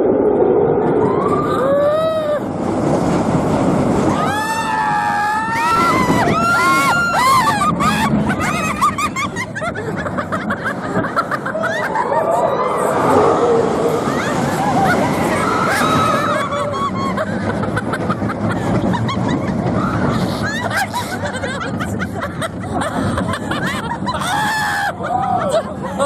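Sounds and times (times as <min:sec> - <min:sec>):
roller coaster rushing rumble: 0:00.0 - 0:26.0
people screaming and whooping: 0:00.7 - 0:02.7, 0:04.0 - 0:26.0
people laughing: 0:06.0 - 0:13.1, 0:13.9 - 0:26.0.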